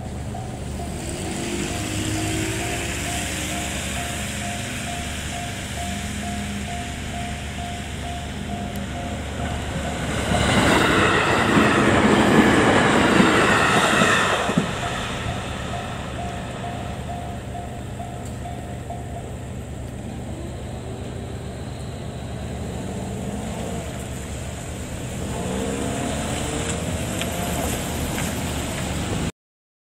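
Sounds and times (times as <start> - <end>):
level crossing warning bell: 0.0 - 23.4
electric train passing: 0.0 - 29.3
low rumble of train: 0.0 - 29.3.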